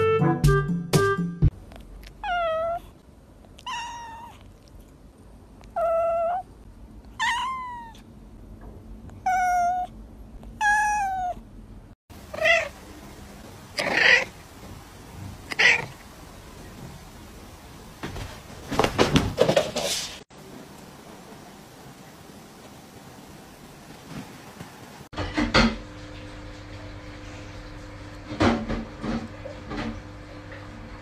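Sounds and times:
cat calling: 0:02.2 - 0:02.9, 0:03.6 - 0:04.5, 0:05.6 - 0:06.5, 0:07.2 - 0:08.0, 0:09.2 - 0:09.9, 0:10.6 - 0:11.4, 0:12.2 - 0:12.8, 0:13.7 - 0:14.5, 0:15.4 - 0:16.1
kitten meowing: 0:02.2 - 0:02.9, 0:03.6 - 0:04.4, 0:05.7 - 0:06.5, 0:07.2 - 0:08.0, 0:09.2 - 0:09.9, 0:10.6 - 0:11.4, 0:15.5 - 0:16.0.

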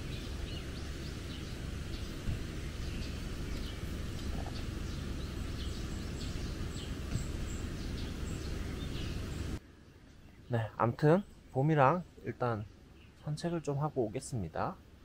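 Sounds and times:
birds chirping: 0:00.0 - 0:14.8
low background noise: 0:00.0 - 0:15.0.

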